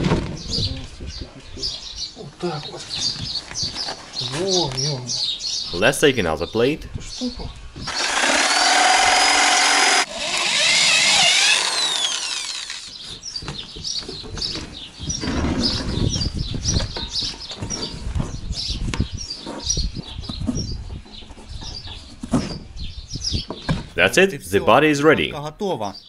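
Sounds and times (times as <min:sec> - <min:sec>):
cordless drill driving screw: 0:07.9 - 0:13.0.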